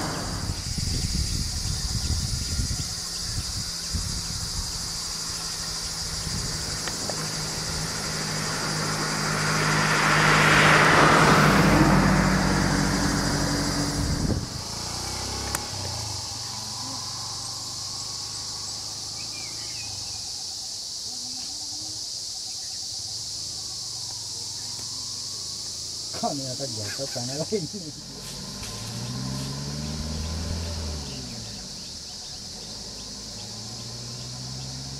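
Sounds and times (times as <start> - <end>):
car driving past: 0.0 - 1.0, 4.8 - 20.2, 24.7 - 34.9
insects droning: 0.0 - 34.9.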